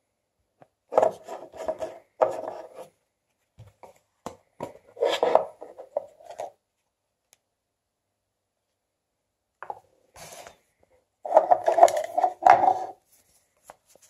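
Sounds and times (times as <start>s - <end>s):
plastic cup lid rubbing and clicking: 1.0s - 2.8s, 5.0s - 6.5s, 11.3s - 13.0s.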